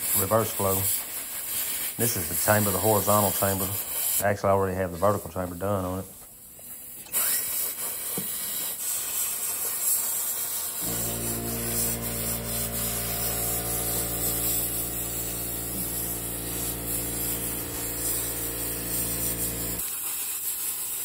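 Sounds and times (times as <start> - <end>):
plasma cutter hissing: 6.8 - 21.0.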